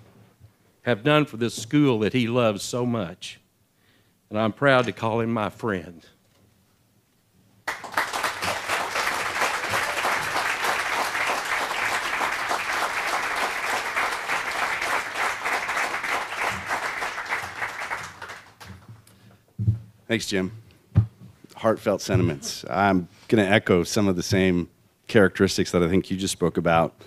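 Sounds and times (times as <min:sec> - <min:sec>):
audience applauding: 0:07.6 - 0:18.9.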